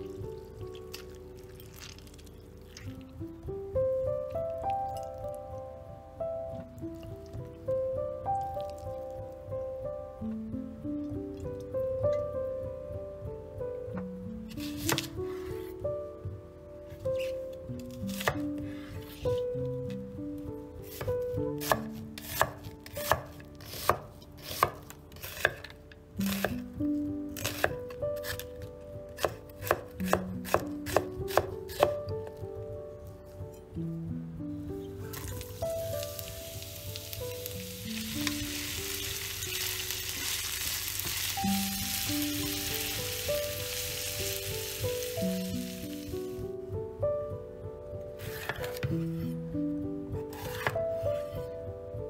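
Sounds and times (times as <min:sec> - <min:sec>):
soft background music: 0:00.0 - 0:52.0
knife slicing onion on cutting board: 0:14.5 - 0:15.4, 0:18.0 - 0:19.4, 0:20.8 - 0:26.6, 0:27.4 - 0:28.5, 0:29.2 - 0:32.0, 0:48.2 - 0:49.3, 0:50.3 - 0:51.5
onions sizzling in oil: 0:35.2 - 0:46.4.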